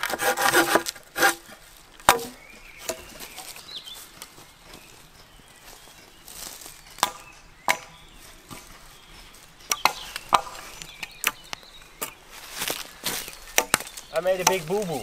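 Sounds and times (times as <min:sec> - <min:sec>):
hatchet chopping wood: 0:00.0 - 0:01.4, 0:02.1 - 0:03.0, 0:07.0 - 0:08.0, 0:09.7 - 0:10.6, 0:13.5 - 0:15.0.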